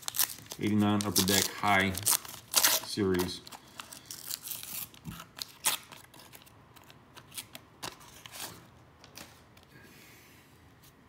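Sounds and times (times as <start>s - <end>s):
foil wrapper crinkling: 0.0s - 8.4s.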